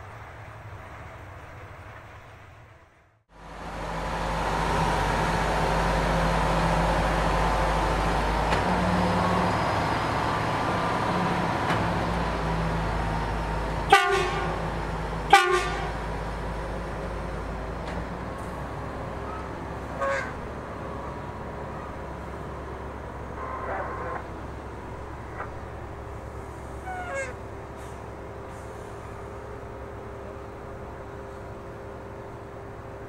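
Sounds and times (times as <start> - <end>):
diesel engines running: 0.0 - 33.0
short horn toots: 20.0 - 20.4.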